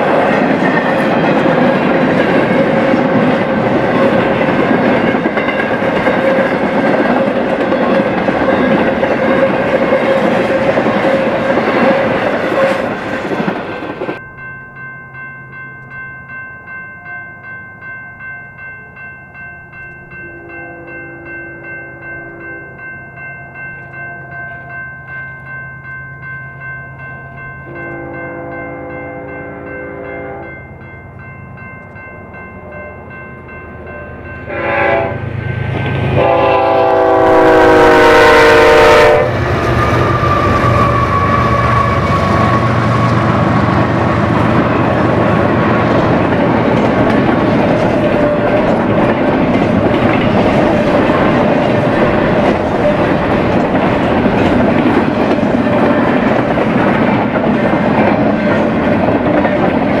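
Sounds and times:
locomotive horn blasts: 27.7 - 30.6, 34.5 - 35.3, 36.1 - 39.4.

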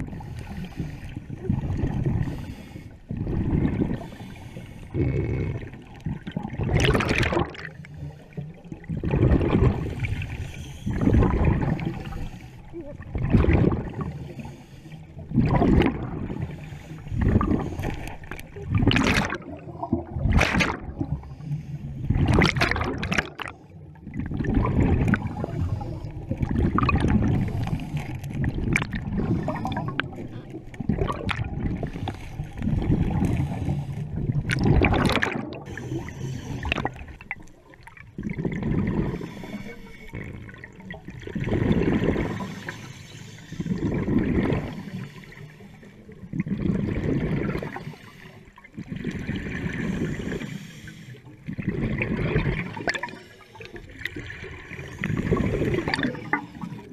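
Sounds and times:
exhaled bubbles rushing: 0.0 - 14.4, 15.2 - 21.4, 22.0 - 42.8, 43.5 - 45.3, 46.2 - 50.6, 51.4 - 56.9
diver breathing through regulator: 2.0 - 5.9, 9.7 - 12.8, 13.8 - 15.4, 16.1 - 18.4, 21.0 - 22.2, 25.2 - 26.4, 27.0 - 28.4, 29.0 - 30.4, 31.8 - 34.3, 35.6 - 37.2, 38.5 - 40.4, 42.2 - 46.1, 47.6 - 51.5, 53.0 - 56.9.

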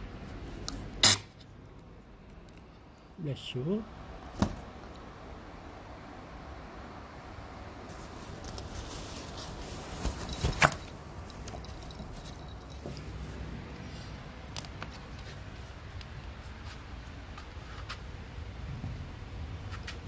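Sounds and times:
puppy rustling in fabric tunnel: 7.8 - 12.4.

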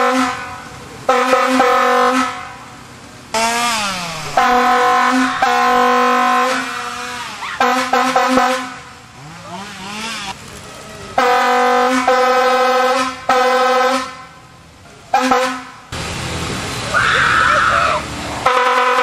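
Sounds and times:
air horn blasts: 0.0 - 2.7, 3.4 - 9.0, 11.2 - 14.4, 15.1 - 15.9, 18.4 - 19.0.

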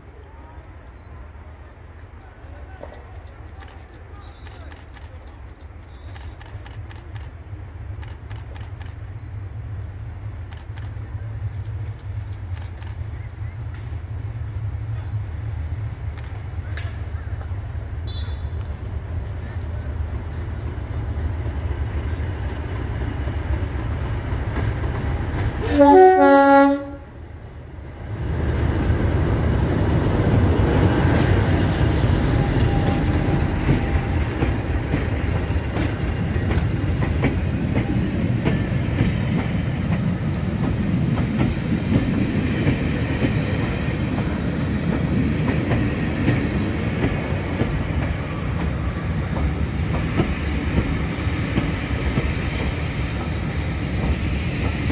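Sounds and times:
locomotive horn: 25.6 - 27.2.

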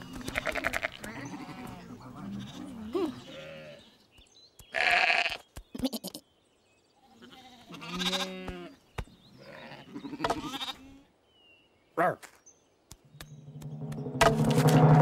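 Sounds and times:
cartoon sheep bleating: 7.2 - 8.8.

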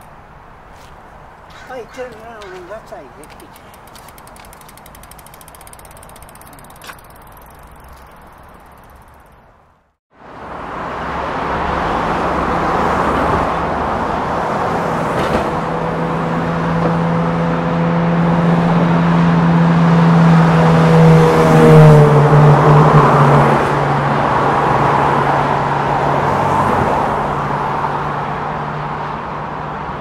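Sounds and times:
passing cars traffic rush: 0.0 - 30.0
vehicle engine passing by: 10.4 - 29.9.

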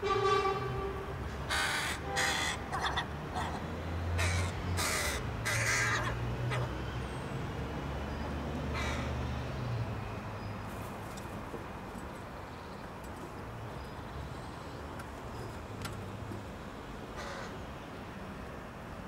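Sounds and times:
crows cawing: 1.5 - 3.6, 4.2 - 6.7, 8.7 - 9.2, 17.2 - 17.6.

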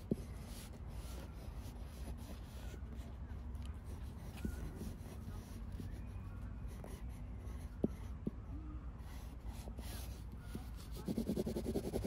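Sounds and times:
pencil scratching on paper: 9.2 - 12.0.

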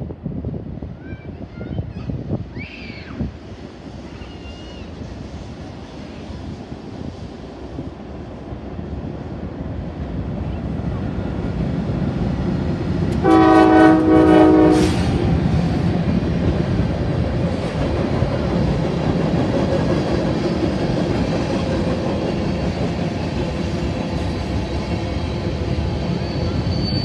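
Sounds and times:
freight cars rumbling over bridge: 0.0 - 27.0
locomotive horn blast: 13.2 - 15.2.

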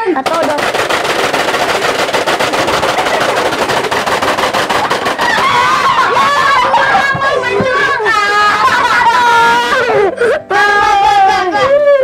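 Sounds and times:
plastic toy mechanism clicking: 0.2 - 6.9
child crying out: 5.2 - 12.0.

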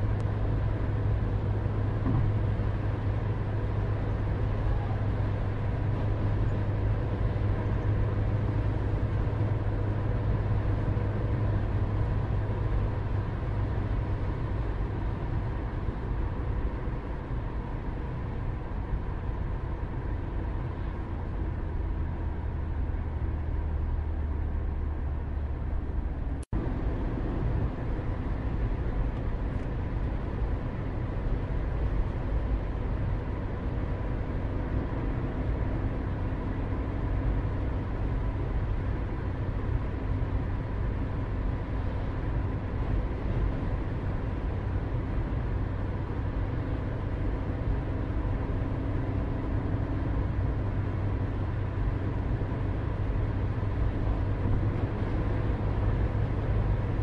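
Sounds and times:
low outdoor rumble: 0.0 - 57.0.

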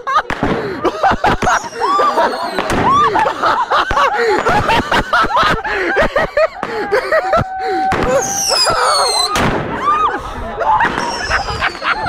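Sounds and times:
people shouting and laughing: 0.0 - 12.0
firecrackers cracking: 0.2 - 7.0, 7.9 - 9.9, 10.8 - 12.0
falling high whistles: 8.2 - 9.4.

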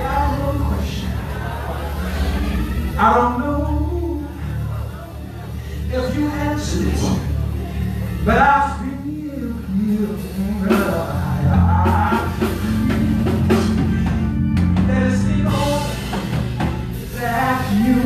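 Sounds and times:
live church band music: 0.0 - 18.0
person singing into a microphone: 0.0 - 18.0.

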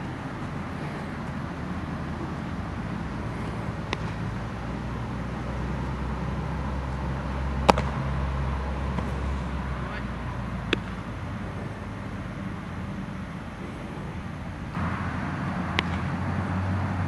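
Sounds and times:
steady low hum: 0.0 - 17.0
baseball smacking into glove: 3.9 - 4.2, 7.6 - 8.0, 10.7 - 11.0, 15.8 - 16.1
faint sharp crack: 7.6 - 8.0, 15.8 - 16.1.

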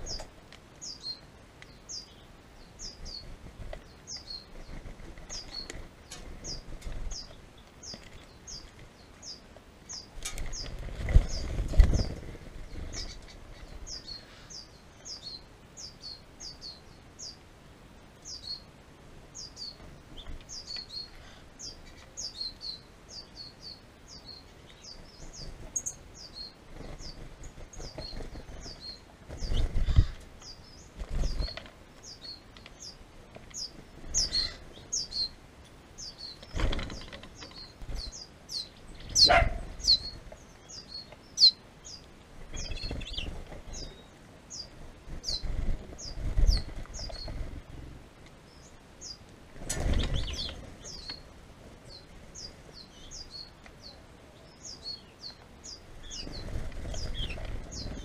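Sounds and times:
bird wing flutters: 3.1 - 7.3, 10.2 - 13.3, 26.6 - 31.8, 36.4 - 38.1, 44.7 - 48.0, 49.5 - 50.9, 56.0 - 58.0
small bird chipping: 19.4 - 35.4, 36.0 - 51.3.

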